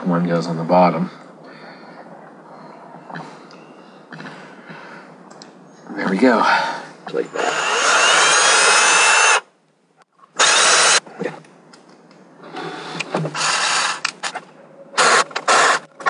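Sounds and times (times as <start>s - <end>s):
cordless drill driving screws into wood: 7.3s - 9.4s, 10.4s - 11.0s, 12.5s - 14.3s, 15.0s - 16.0s.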